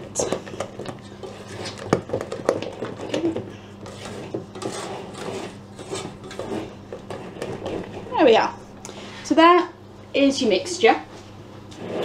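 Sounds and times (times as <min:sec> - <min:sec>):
spatula scraping a metal bowl: 0:03.8 - 0:08.6, 0:11.7 - 0:12.0.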